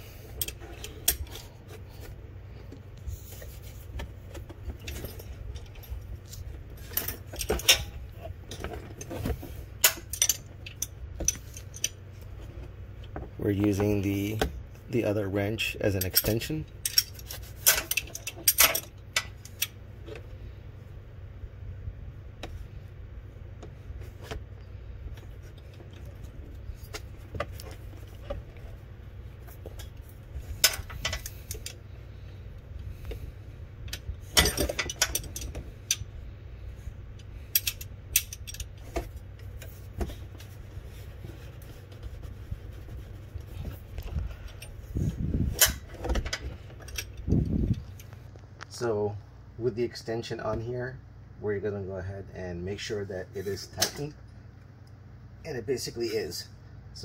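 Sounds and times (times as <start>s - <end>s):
steady low hum: 0.0s - 57.0s
metal wrenches clinking: 4.8s - 12.0s, 15.8s - 19.8s, 34.2s - 36.0s, 37.5s - 38.8s.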